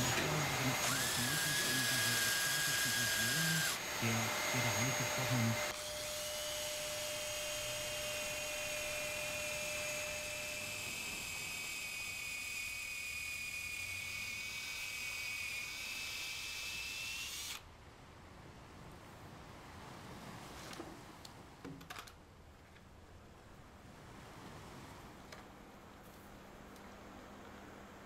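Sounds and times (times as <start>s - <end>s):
power drill cutting metal: 0.0s - 17.6s.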